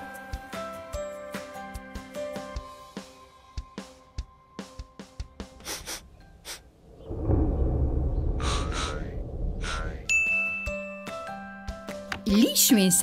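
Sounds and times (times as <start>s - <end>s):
light music: 0.0s - 6.8s, 10.1s - 13.0s
low rumbling whoosh: 6.8s - 10.7s.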